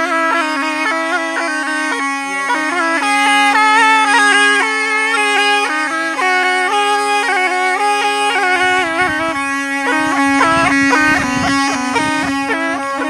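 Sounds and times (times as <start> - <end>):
pipe playing wavering melody: 0.0 - 13.0
steady drone note: 0.0 - 13.0
low thumps: 8.2 - 13.0.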